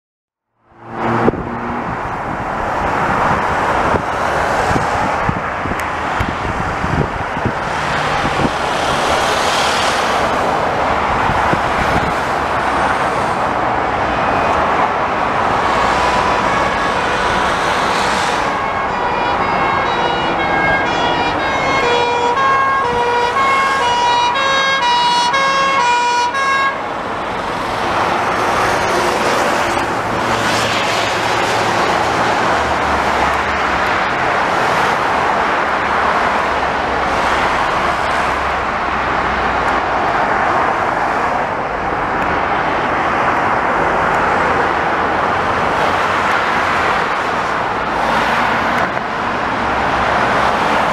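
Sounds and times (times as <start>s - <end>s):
passing cars: 0.5s - 50.9s
two-tone siren: 15.6s - 26.9s.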